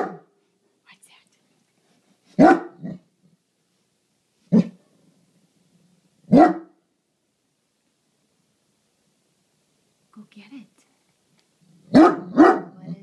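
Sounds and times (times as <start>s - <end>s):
dog barking deeply: 0.0s - 0.3s, 2.4s - 3.1s, 4.5s - 4.8s, 6.3s - 6.8s, 11.8s - 13.0s.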